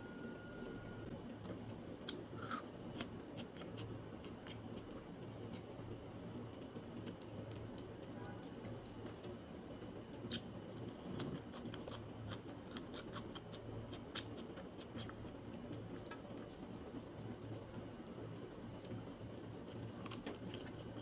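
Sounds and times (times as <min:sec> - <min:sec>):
low hum: 0:00.0 - 0:01.3
tearing meat and chewing crackles: 0:01.3 - 0:05.9, 0:06.6 - 0:16.2, 0:19.7 - 0:21.0.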